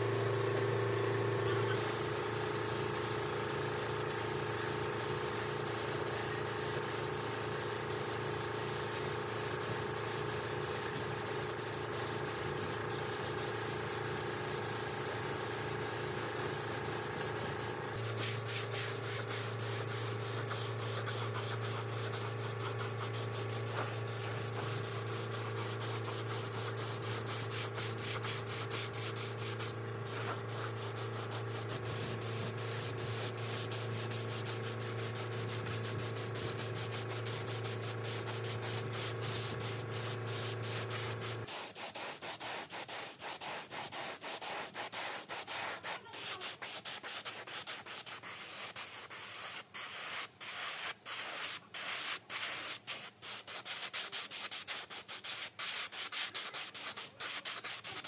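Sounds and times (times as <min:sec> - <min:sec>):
electric motor hum: 0:00.0 - 0:41.5
sanding: 0:16.6 - 0:58.0.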